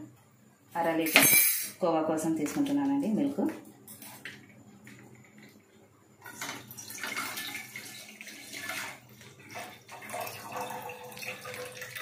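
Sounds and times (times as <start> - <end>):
milk pouring into a pan: 6.2 - 12.0.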